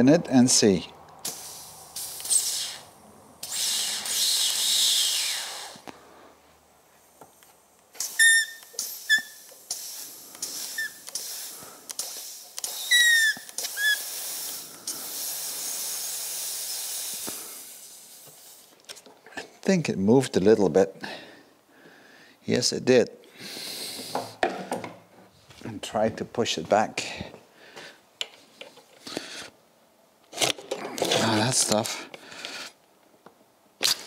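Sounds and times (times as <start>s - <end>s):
air whistling: 1.2s - 5.9s, 8.0s - 18.6s
compressed air hissing: 1.2s - 18.8s, 23.4s - 24.4s.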